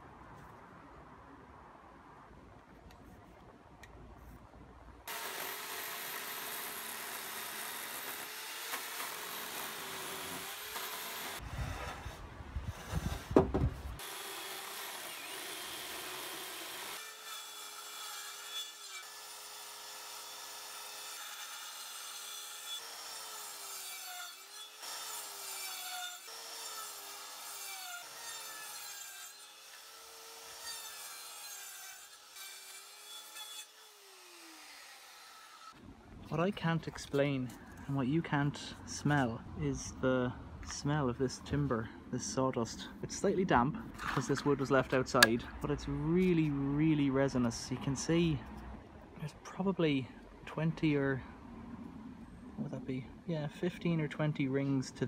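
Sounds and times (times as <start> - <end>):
electric chainsaw running: 5.1 - 11.4, 14.0 - 17.0
circular saw cutting wood: 5.1 - 12.2, 14.0 - 35.8.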